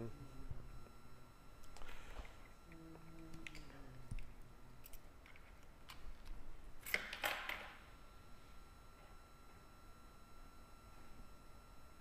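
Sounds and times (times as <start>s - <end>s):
low hum: 0.0s - 7.0s.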